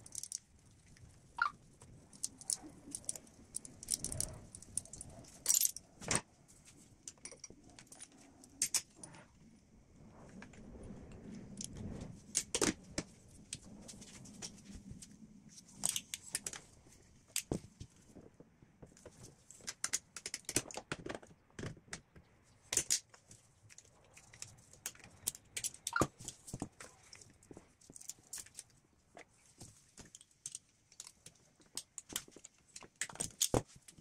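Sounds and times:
hand tools and fasteners clinking: 2.1 - 6.2, 30.0 - 34.0.

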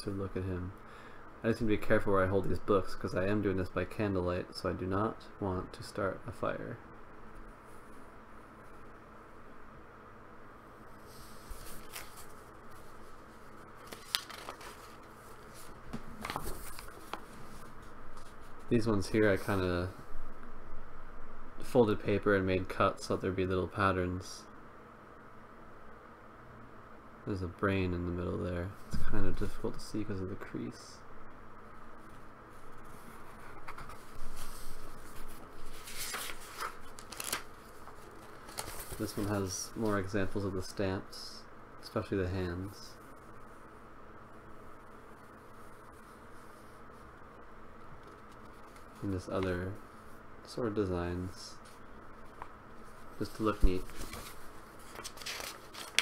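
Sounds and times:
paper pages rustling: 11.2 - 19.6, 32.1 - 40.4, 48.0 - 49.6, 51.6 - 56.0.

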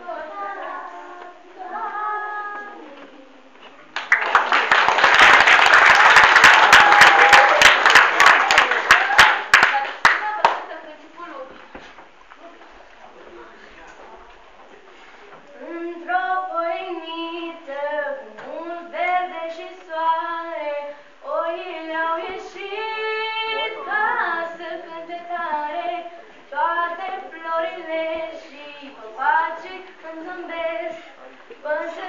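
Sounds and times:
girl singing: 0.0 - 3.6, 15.6 - 32.0.

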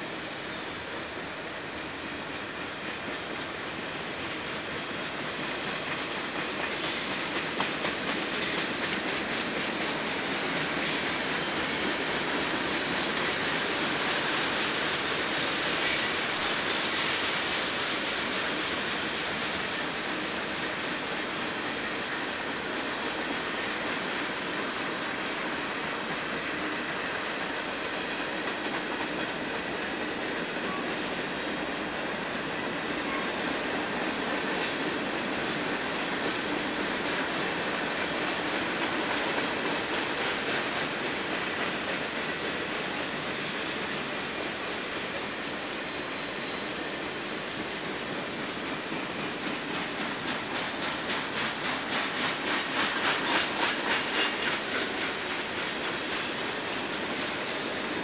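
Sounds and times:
freight train wheels rumbling: 0.0 - 58.0
high wheel squeal: 15.8 - 16.3, 17.0 - 22.6.

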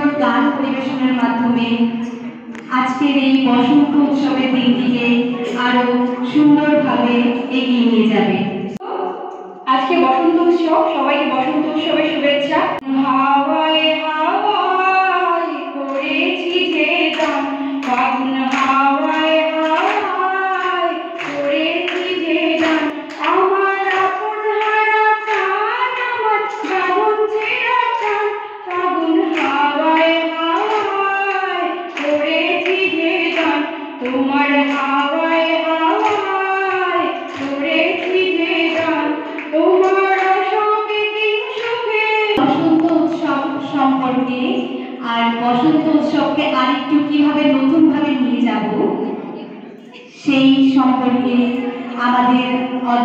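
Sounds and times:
woman singing: 9.7 - 48.9.

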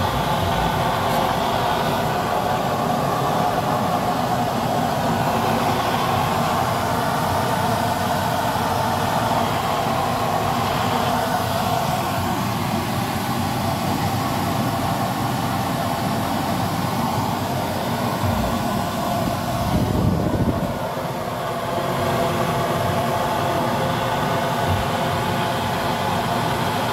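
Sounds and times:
oil burner and blower rushing: 0.0 - 26.9.

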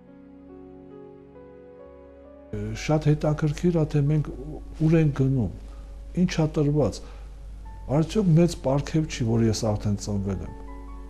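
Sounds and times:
soft background music chords: 0.0 - 11.0.

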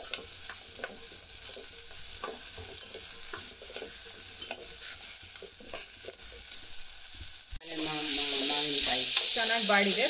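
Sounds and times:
spoon scraping a pan: 0.0 - 7.0
food sizzling in hot oil: 0.0 - 10.0.

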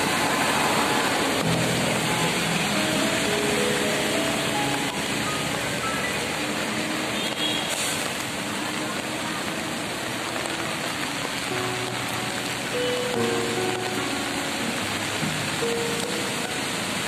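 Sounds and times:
heavy rain on a flooded road: 0.0 - 17.0
faint music notes: 1.4 - 7.1, 10.3 - 17.0.

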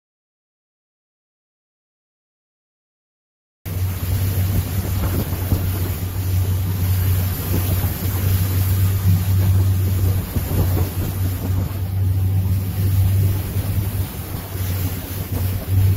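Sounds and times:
motorboat engine drone: 3.7 - 15.9
wind buffeting microphone: 3.7 - 15.9.

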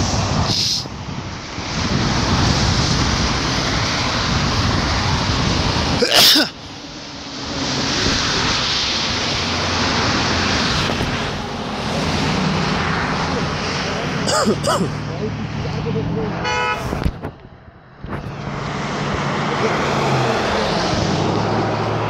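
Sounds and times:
wind buffeting microphone: 0.0 - 6.0, 6.6 - 14.2, 16.8 - 19.4.

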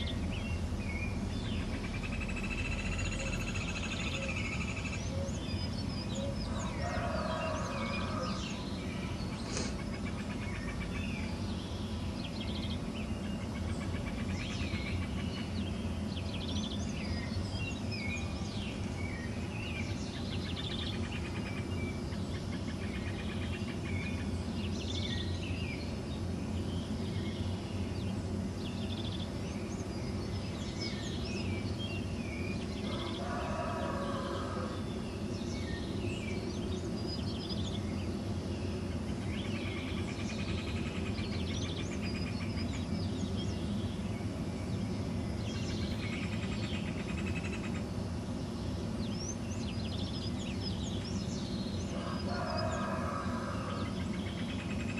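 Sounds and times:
longer lower-pitched bird call: 0.0 - 11.2
low background rumble: 0.0 - 54.9
songbirds chirping and whistling: 0.0 - 54.9.

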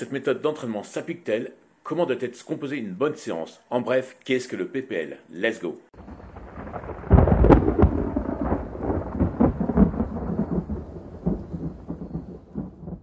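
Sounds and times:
rolling thunder rumble: 6.0 - 13.0
thunder crack and boom: 6.0 - 13.0.

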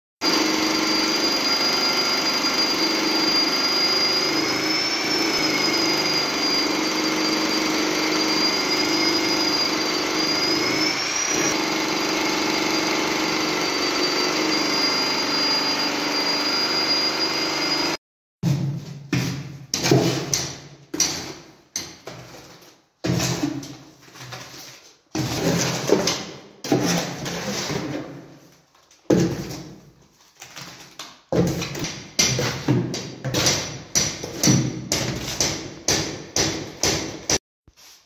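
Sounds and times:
hammer drill boring into concrete: 0.2 - 18.0.

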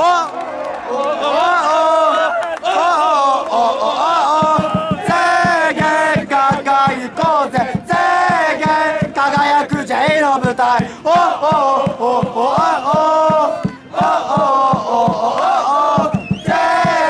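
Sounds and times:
crowd singing a chant: 0.9 - 17.0
steady beat: 4.3 - 17.0.

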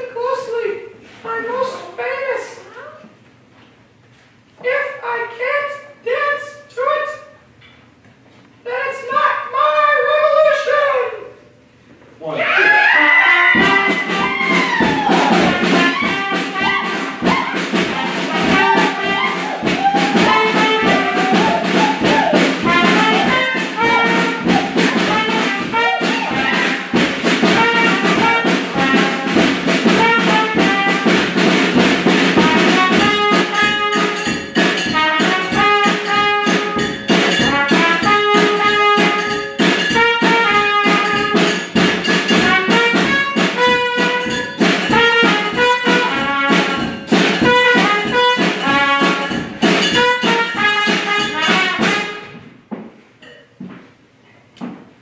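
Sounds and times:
brass ensemble playing: 12.7 - 52.4.

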